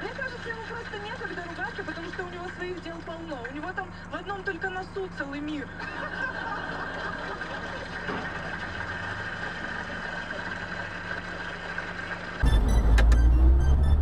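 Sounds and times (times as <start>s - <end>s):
car engine and road hum: 12.4s - 14.0s.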